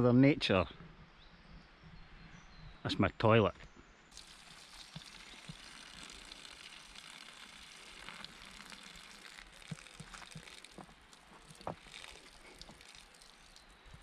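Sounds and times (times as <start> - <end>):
faint steady hiss: 3.0 - 14.0.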